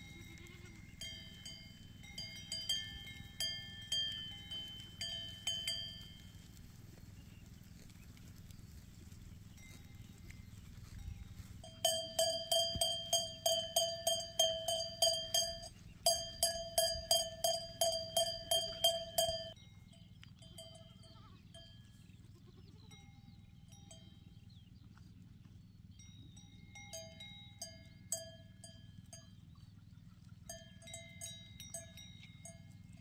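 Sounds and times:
metal bell rung rapidly: 11.7 - 19.6.

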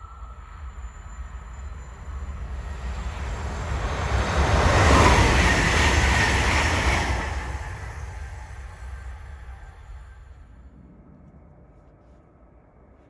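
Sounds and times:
train wheels on rails: 0.0 - 10.7
rushing air of passing train: 0.0 - 12.6.

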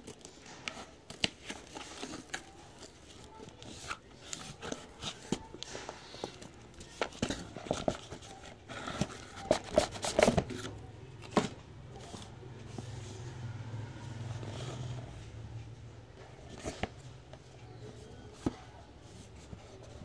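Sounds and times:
cardboard packaging rustling: 0.0 - 12.8.

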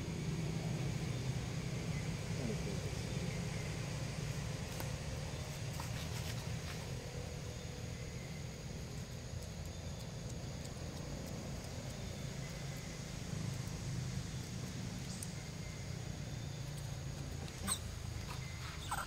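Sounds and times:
low background rumble: 0.0 - 19.0
monkey squeak: 17.6 - 19.0.

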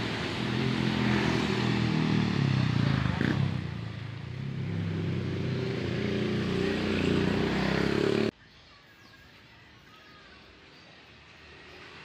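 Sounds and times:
motorcycle engine running: 0.0 - 8.3.

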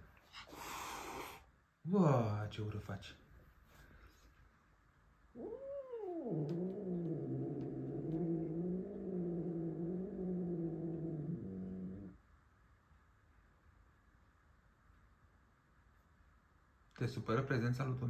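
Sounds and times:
cat growling: 5.3 - 12.2.

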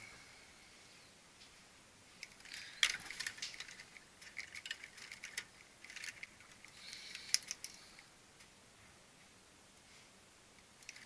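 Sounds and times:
crimping pliers clicking on wire: 2.2 - 7.8.

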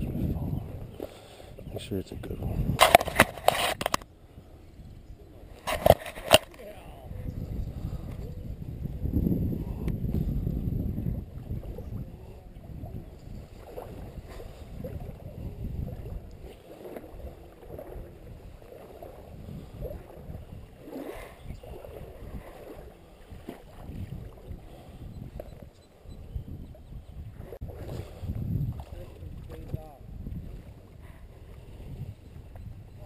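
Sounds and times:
wind rumble on microphone: 0.0 - 33.0
water sloshing: 11.1 - 26.2.

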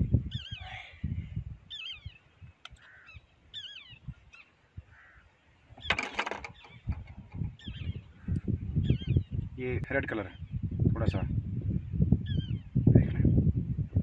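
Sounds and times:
bird wavering calls: 0.3 - 0.7, 1.7 - 9.3.

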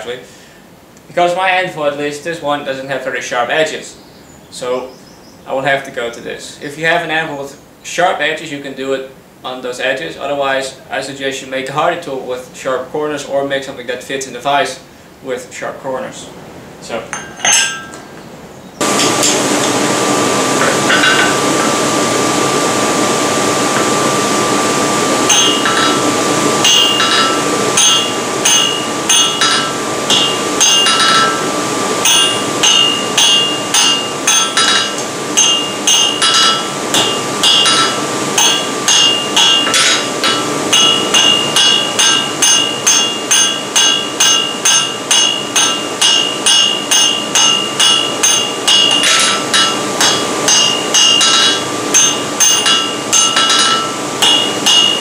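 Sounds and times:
hammer striking hot metal: 17.2 - 18.0, 18.8 - 19.8, 20.6 - 21.8, 25.2 - 55.0.

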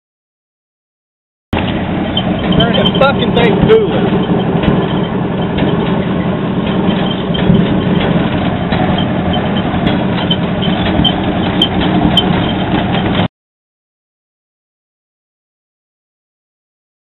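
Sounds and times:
truck engine running: 1.6 - 13.3.

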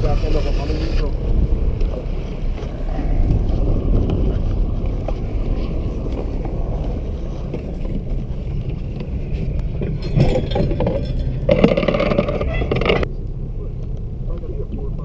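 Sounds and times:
water noise: 0.0 - 13.0
wind rumbling on microphone: 0.0 - 15.0.

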